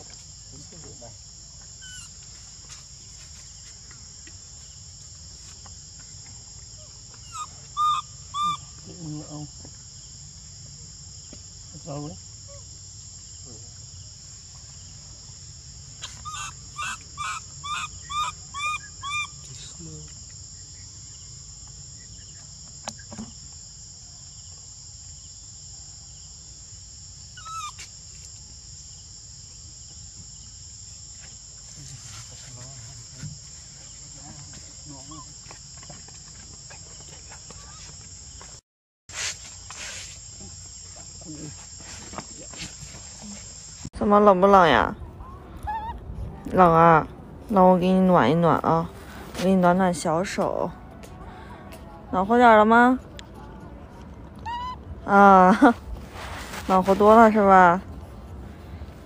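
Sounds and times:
baby monkey squealing: 1.8s - 2.2s, 7.2s - 8.8s, 16.0s - 19.5s, 27.4s - 27.9s, 45.6s - 46.0s, 54.4s - 54.9s.

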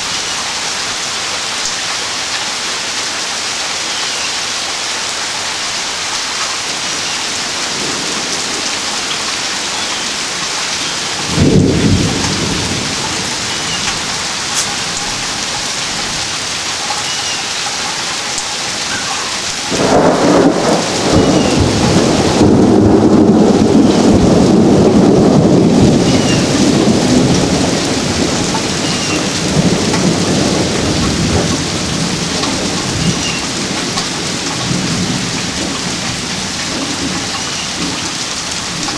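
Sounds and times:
steady rain: 0.0s - 38.9s
thunder clap: 11.2s - 15.3s, 19.6s - 38.9s
thunder rumble: 11.2s - 16.3s, 19.6s - 38.9s.

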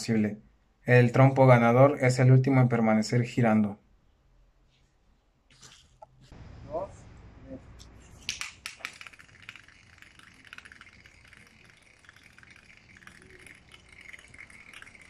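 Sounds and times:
high whirr of spinning tops: 7.9s - 15.0s
spinning tops clacking on concrete: 8.1s - 15.0s.

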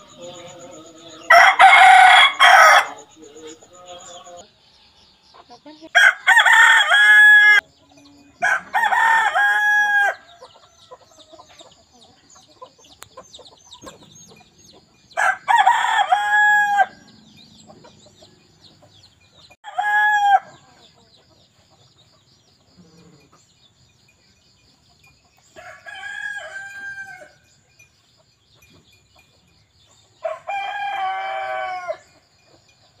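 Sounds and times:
rooster crowing: 1.2s - 3.2s, 5.9s - 7.6s, 8.4s - 11.2s, 15.2s - 17.4s, 19.6s - 20.8s, 25.6s - 27.4s, 30.2s - 32.2s.

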